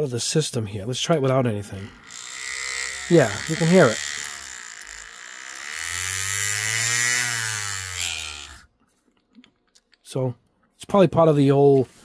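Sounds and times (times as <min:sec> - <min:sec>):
paint shaker motor whine: 0:01.7 - 0:08.7.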